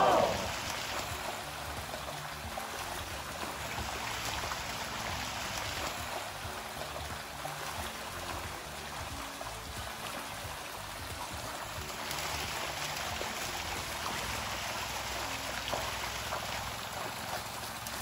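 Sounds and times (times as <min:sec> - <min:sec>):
fish splashing at water surface: 0:00.0 - 0:18.0.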